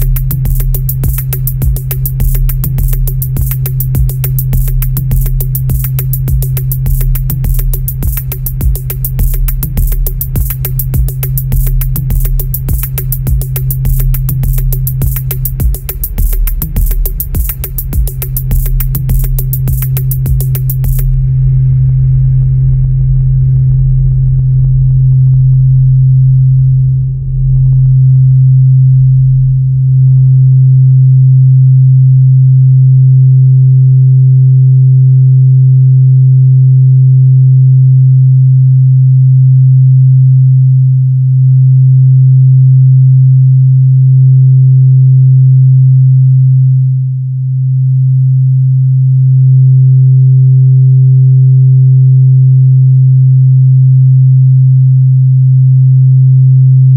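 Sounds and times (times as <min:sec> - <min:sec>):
drum machine beat: 0:00.0 - 0:21.3
low electronic drone tone: 0:00.0 - 0:56.9.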